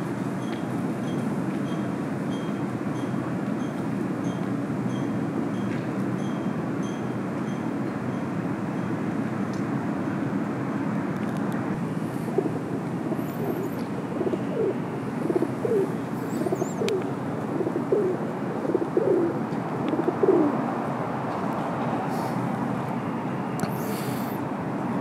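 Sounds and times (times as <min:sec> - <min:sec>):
steady background hum: 0:00.0 - 0:25.0
pigeon cooing: 0:12.2 - 0:20.6.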